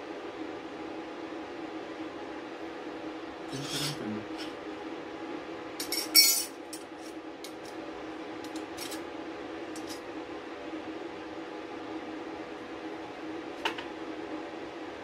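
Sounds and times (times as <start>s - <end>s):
metal pieces clinking on table: 5.8s - 6.5s.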